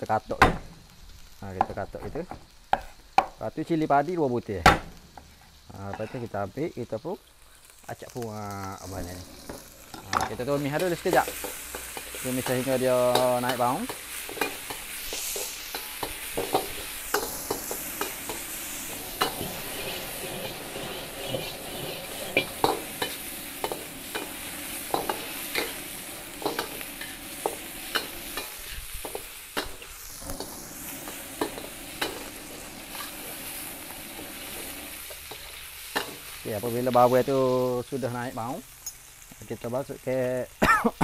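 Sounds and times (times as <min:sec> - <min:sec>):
oil sizzling in wok: 0:00.0 - 0:41.0
metal spatula scraping wok: 0:08.9 - 0:37.4.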